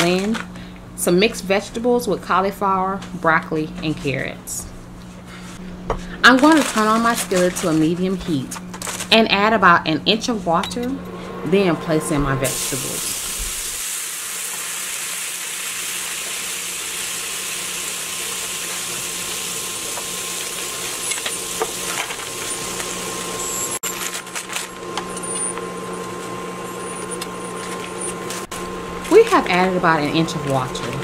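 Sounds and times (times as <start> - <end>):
water sizzling in hot skillet: 12.5 - 23.3.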